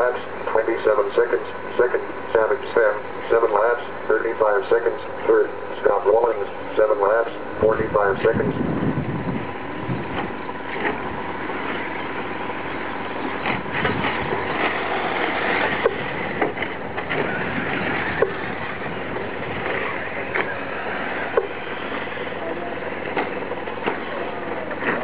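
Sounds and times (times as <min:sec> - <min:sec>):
rc truck motors and tyres: 0:13.2 - 0:25.0.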